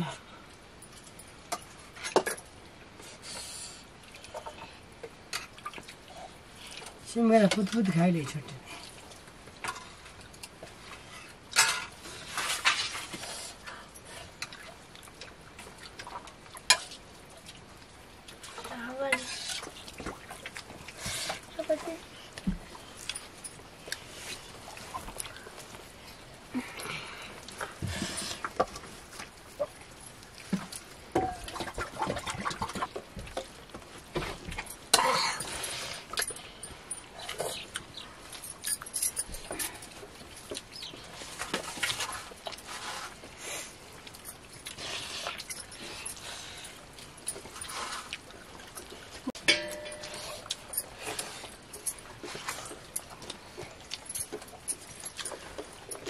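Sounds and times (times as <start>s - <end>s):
metal ladle scraping a wok: 19.2s - 19.7s.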